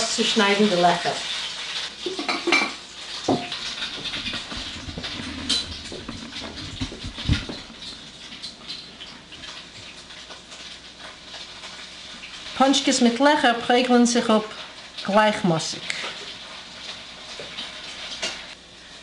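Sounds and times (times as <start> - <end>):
glass knocking on countertop: 3.3 - 7.7
dough scraping and rustling: 3.5 - 8.3.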